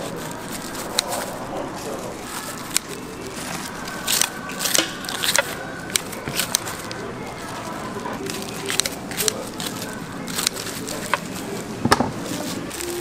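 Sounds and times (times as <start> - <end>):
metal utensils clicking: 2.4 - 11.4.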